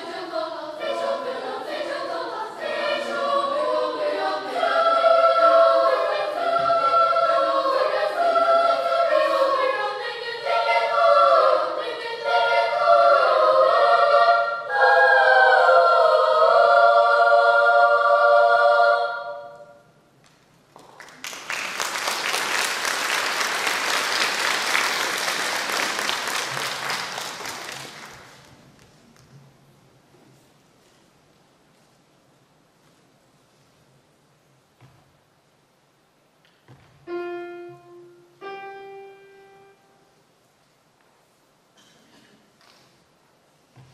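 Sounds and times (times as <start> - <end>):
children's choir singing: 0.0 - 20.0, 21.8 - 28.5
audience applause: 20.8 - 28.4.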